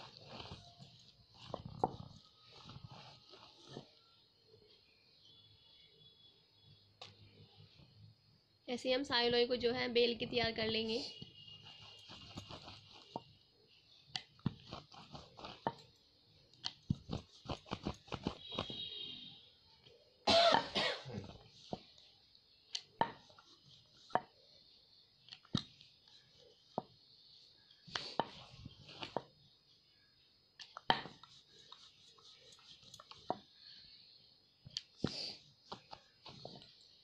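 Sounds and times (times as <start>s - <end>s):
rolling pin knocking on wooden board: 23.0s - 23.2s.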